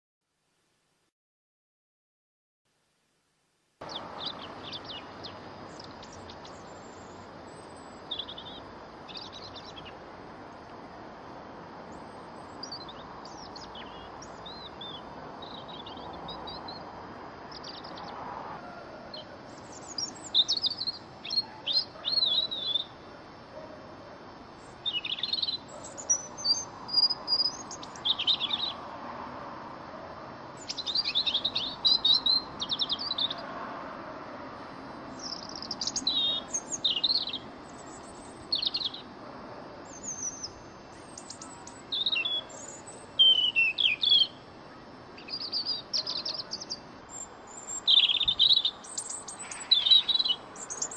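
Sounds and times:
faint background hiss: 0.3s - 1.1s, 2.7s - 50.9s
robin singing: 3.8s - 10.7s, 11.9s - 18.2s, 19.1s - 28.9s, 30.6s - 33.5s, 35.1s - 39.1s, 39.8s - 50.9s.

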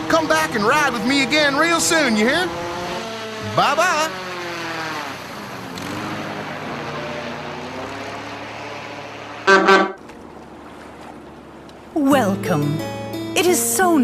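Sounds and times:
boat engine running: 0.0s - 14.0s
horn toot: 9.4s - 10.0s.

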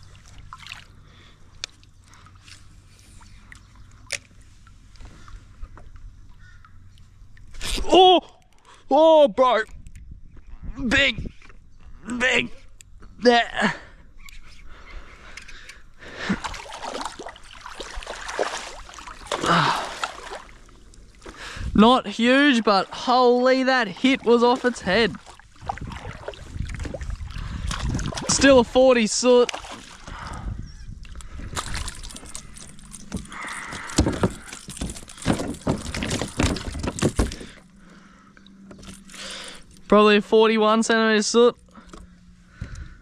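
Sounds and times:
water splashing: 0.0s - 1.0s, 16.2s - 30.3s
water sloshing: 0.0s - 7.6s, 16.1s - 40.0s
knocks against a hull: 33.1s - 37.6s.

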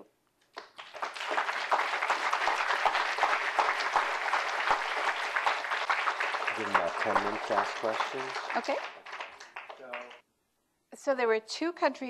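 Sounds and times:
audience applauding: 0.6s - 10.2s.

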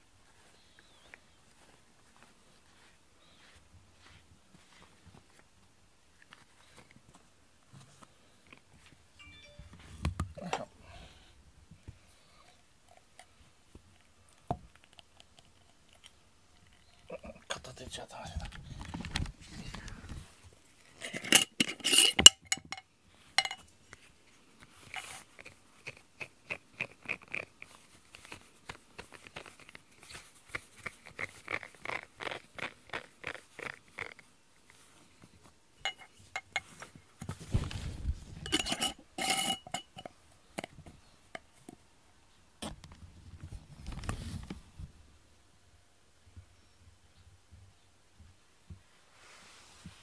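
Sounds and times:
glass jar clinking: 23.4s - 23.6s, 35.9s - 36.7s, 38.4s - 40.7s.

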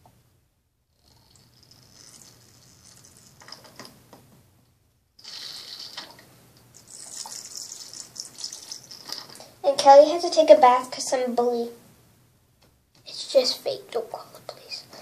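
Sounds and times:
liquid trickling from toy bottle: 1.3s - 3.7s, 5.2s - 6.2s, 6.8s - 9.5s.

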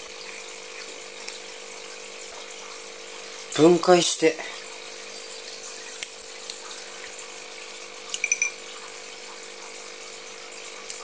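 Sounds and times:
aquarium equipment humming: 0.0s - 11.0s
glass clinking: 8.1s - 8.6s.

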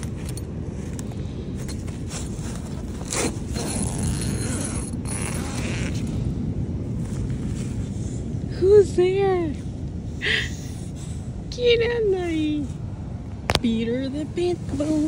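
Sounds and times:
tent zipper being pulled: 0.0s - 6.4s
tent fabric rustling: 0.0s - 8.3s.

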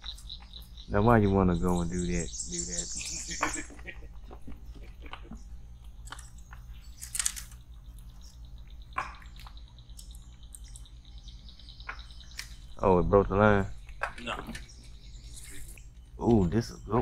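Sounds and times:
high insect buzz: 0.0s - 3.8s.

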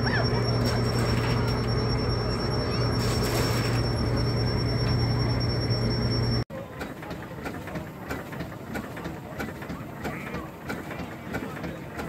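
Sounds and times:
threshing machine humming and whining: 0.0s - 6.4s
faint voices: 0.0s - 12.0s.

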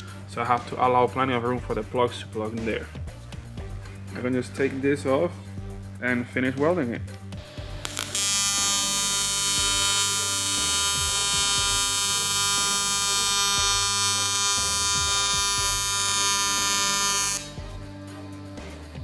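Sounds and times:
welding arc buzzing: 7.4s - 17.6s.

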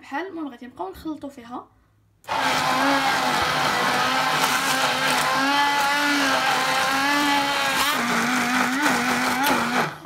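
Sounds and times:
electric hand blender whine: 2.3s - 10.0s.

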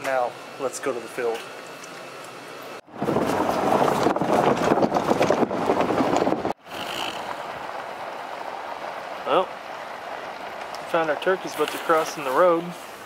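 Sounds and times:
steady vehicle hum: 2.3s - 13.0s
wind buffeting microphone: 2.8s - 12.0s
tyre and road rumble: 2.8s - 13.0s.

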